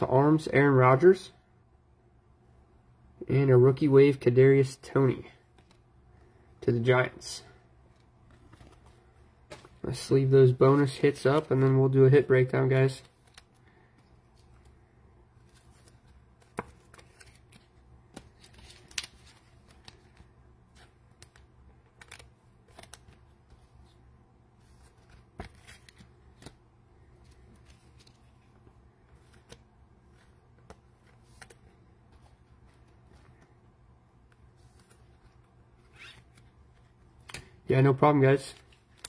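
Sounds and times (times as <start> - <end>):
low steady hum: 0.0 - 39.0
cards sliding into plastic sleeves: 15.4 - 24.0, 24.6 - 33.6, 34.2 - 37.6.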